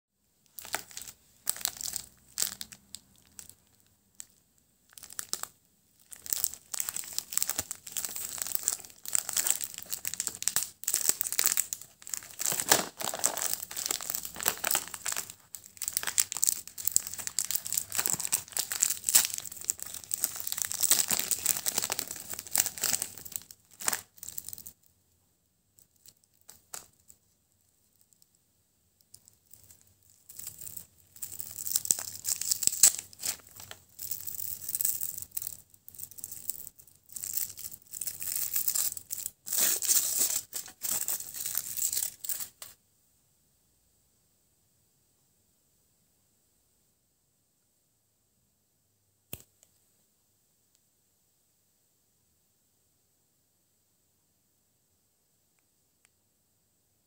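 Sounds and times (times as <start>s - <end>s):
plastic wrapper crinkling: 0.4s - 24.8s, 25.8s - 28.4s, 29.0s - 42.8s.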